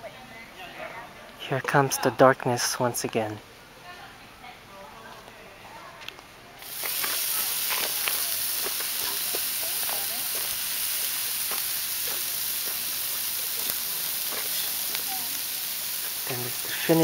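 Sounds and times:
fat popping and crackling: 6.6 - 17.0
meat sizzling on a grill: 6.6 - 17.0.

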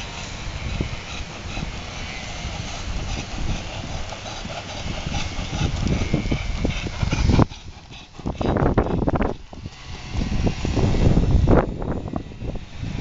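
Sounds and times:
horse hoofbeats on grass: 0.0 - 10.4
steady hiss: 0.0 - 13.0.

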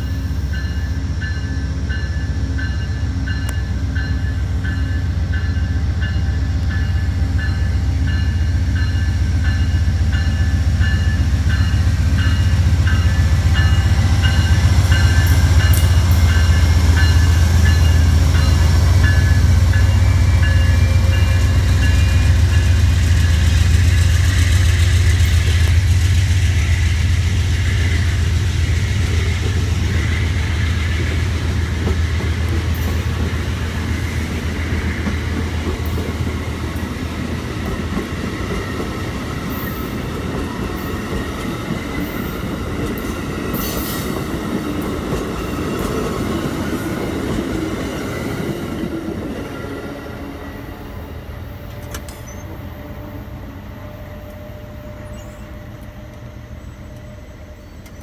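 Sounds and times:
diesel locomotive rumble: 0.0 - 58.0
train wheels clattering over rails: 4.0 - 49.8.

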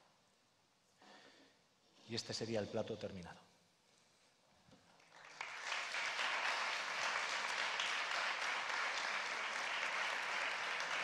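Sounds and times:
audience applauding: 5.0 - 11.0.

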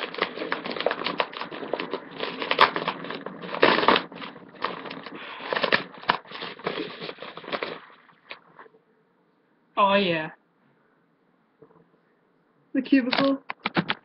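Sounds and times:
paper envelope crinkling and tearing: 0.0 - 8.6.

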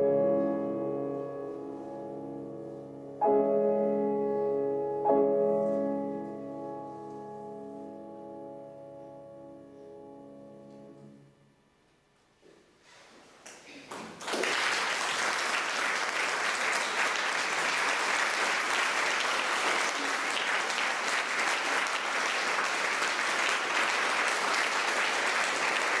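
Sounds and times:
audience applauding: 13.9 - 26.0.

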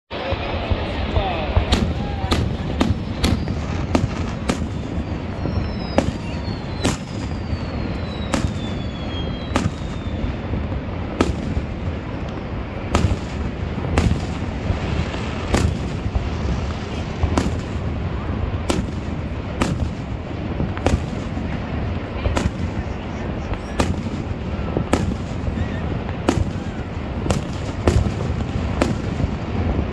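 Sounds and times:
fireworks bursting: 0.1 - 29.9
low rumble: 0.3 - 29.9
high falling whistles: 3.1 - 10.4.

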